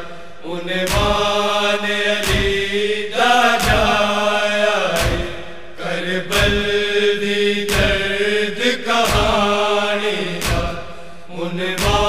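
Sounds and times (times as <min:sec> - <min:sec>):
voices chanting: 0:00.0 - 0:12.0
heavy beat: 0:05.0 - 0:05.5, 0:09.1 - 0:09.6.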